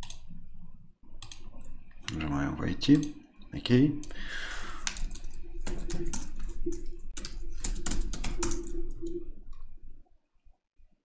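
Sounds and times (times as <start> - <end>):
keyboard typing: 0.0 - 0.3, 1.2 - 2.3, 2.9 - 3.2, 4.0 - 9.2
low steady hum: 0.0 - 10.9.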